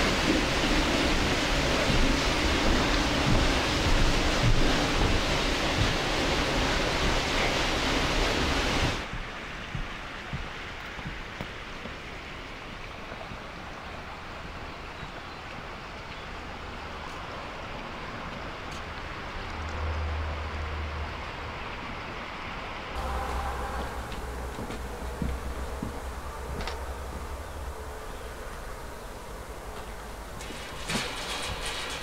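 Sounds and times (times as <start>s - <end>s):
loud steady rushing noise: 0.0s - 12.2s, 20.6s - 31.9s
outdoor background hiss: 0.0s - 32.0s.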